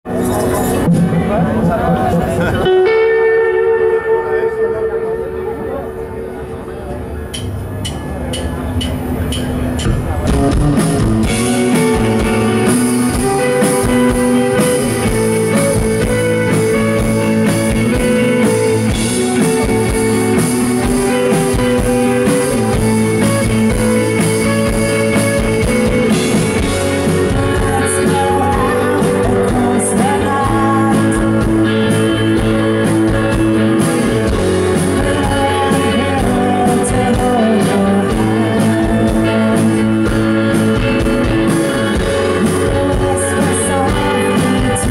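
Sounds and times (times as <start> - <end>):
rock band playing live: 0.0 - 44.9
woman singing: 27.2 - 40.9, 42.0 - 44.9.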